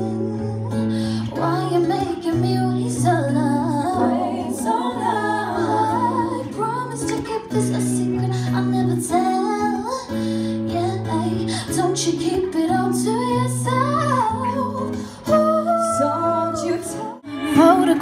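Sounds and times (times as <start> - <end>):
acoustic guitar: 0.0 - 18.0
woman singing: 0.0 - 18.0.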